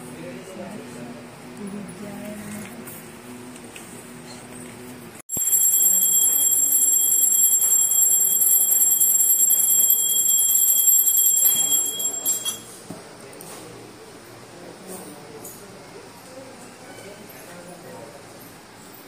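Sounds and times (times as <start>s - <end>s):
bell ringing rapidly: 5.3s - 12.7s.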